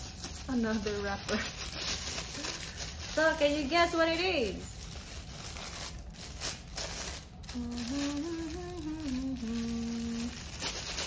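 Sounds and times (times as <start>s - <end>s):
tissue paper rustling: 0.0s - 11.0s
woman humming: 7.5s - 10.4s.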